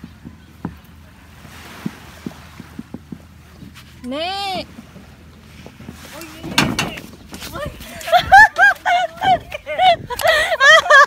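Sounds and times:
wind rumbling on microphone: 0:00.0 - 0:11.0
surf washing on sand: 0:01.1 - 0:09.9.

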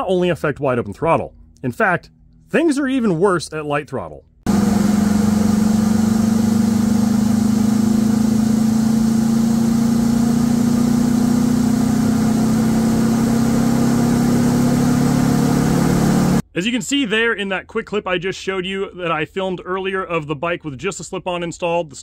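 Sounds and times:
motorcycle engine revving: 0:04.5 - 0:16.4.

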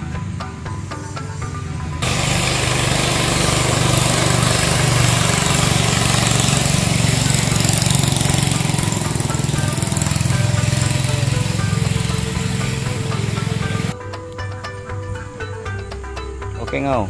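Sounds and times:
background music: 0:00.0 - 0:17.0
boat outboard engine running: 0:02.0 - 0:14.0.

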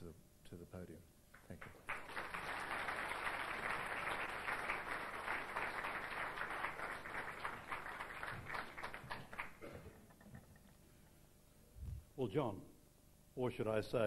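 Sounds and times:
audience applauding: 0:01.4 - 0:10.1.

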